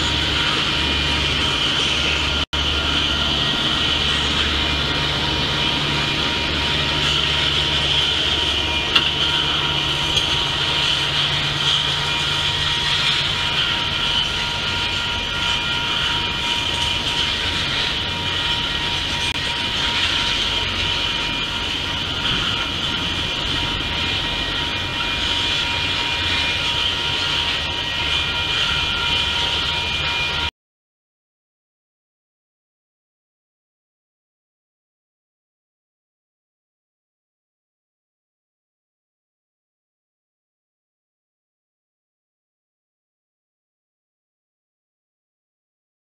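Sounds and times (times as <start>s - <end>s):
freight train wheels on rails: 0.0s - 30.5s
low hum: 0.0s - 30.5s
thin steady tones: 0.0s - 30.5s.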